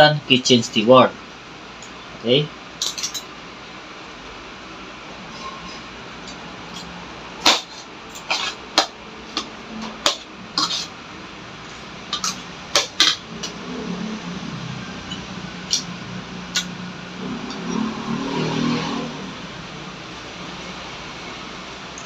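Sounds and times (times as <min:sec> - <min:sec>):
cutlery clinking on a plate: 0:02.8 - 0:03.3.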